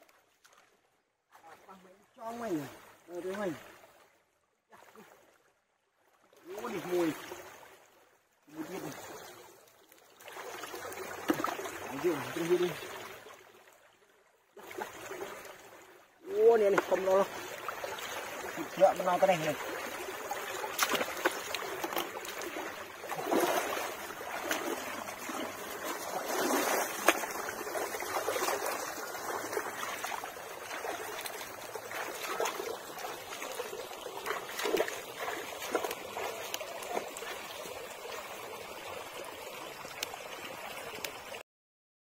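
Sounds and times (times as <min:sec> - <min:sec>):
stream water over ledge: 0:00.0 - 0:41.4
splashing from wading: 0:06.1 - 0:13.7, 0:14.6 - 0:39.0.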